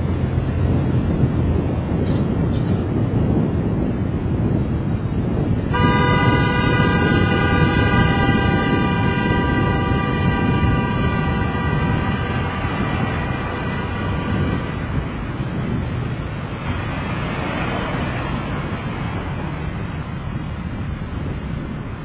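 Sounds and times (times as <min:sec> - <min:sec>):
wind and road noise: 0:00.0 - 0:22.0
long vehicle horn tone: 0:05.6 - 0:15.9.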